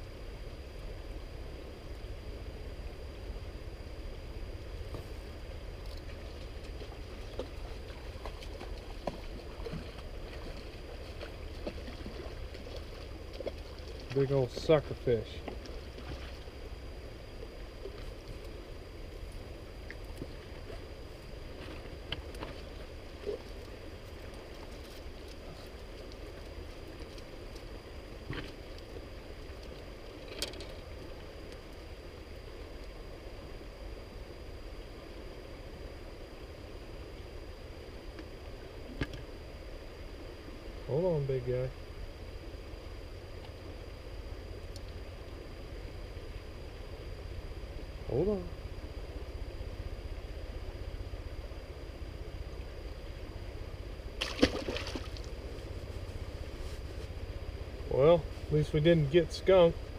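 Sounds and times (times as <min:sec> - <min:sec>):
river current running: 0:00.0 - 0:59.9
steady low rumble: 0:00.0 - 0:59.9
water splash: 0:54.2 - 0:55.4.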